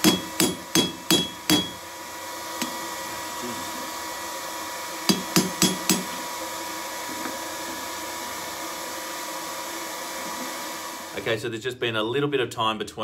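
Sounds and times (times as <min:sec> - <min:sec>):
hammer striking rivet on anvil: 0:00.0 - 0:01.8, 0:05.1 - 0:06.2.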